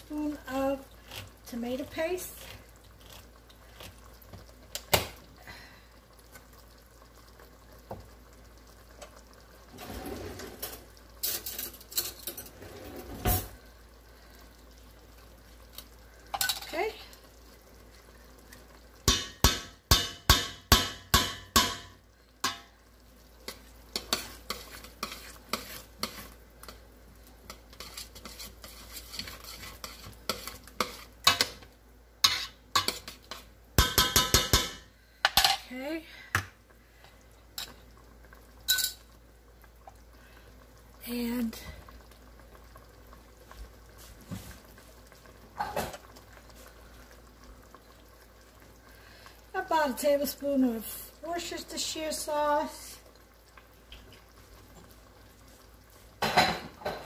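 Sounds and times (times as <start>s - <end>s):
spoon stirring thick stew: 23.4s - 33.5s
metal spoon scraping a pot: 24.0s - 26.3s, 27.5s - 31.5s, 32.2s - 33.5s.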